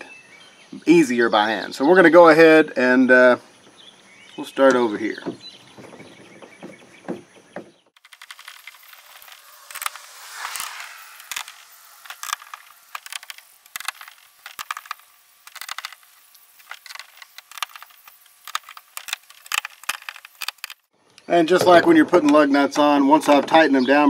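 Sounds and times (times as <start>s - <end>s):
brief scrape: 8.1s - 14.8s.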